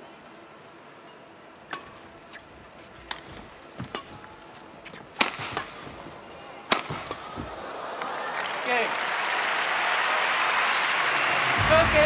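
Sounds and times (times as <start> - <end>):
rackets hitting shuttlecock: 1.6 - 8.5.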